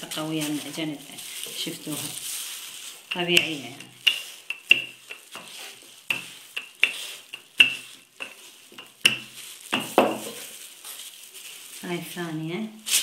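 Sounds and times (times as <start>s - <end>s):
rolling pin rolling dough: 0.0s - 10.5s
rolling pin clacking: 3.1s - 10.4s.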